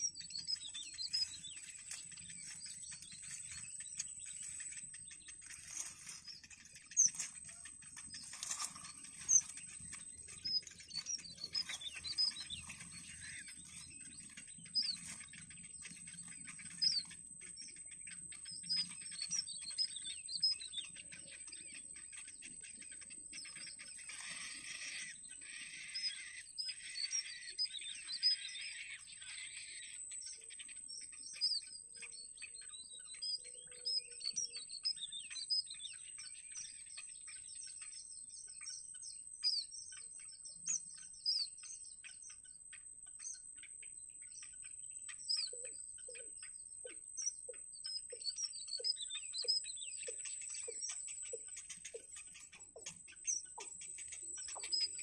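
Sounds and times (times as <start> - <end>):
nestlings chirping: 0.0 - 55.0
rustling: 5.5 - 9.9.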